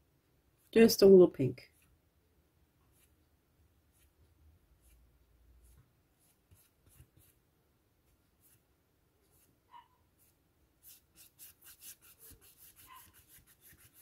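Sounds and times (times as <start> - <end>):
paintbrush scrubbing paper: 2.9 - 3.2, 3.9 - 4.2, 5.6 - 7.4, 10.2 - 14.0.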